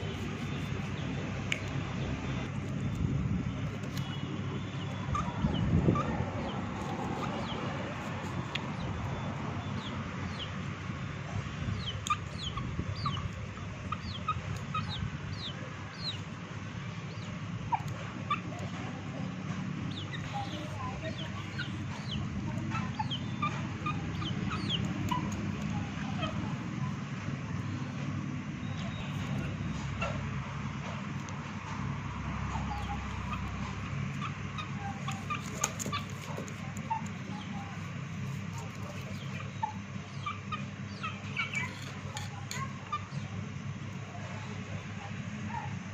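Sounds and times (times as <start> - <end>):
chickens peeping and clucking: 0.0 - 45.9
chicken clucking: 17.1 - 27.7, 31.7 - 43.3.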